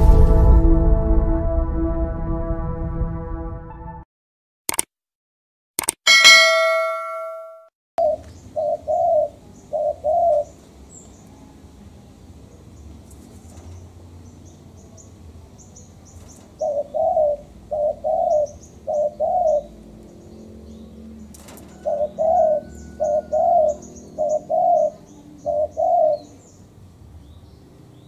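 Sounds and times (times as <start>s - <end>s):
dove cooing: 8.0s - 10.6s, 16.6s - 20.0s, 21.4s - 26.6s
small birds chirping: 8.0s - 28.0s.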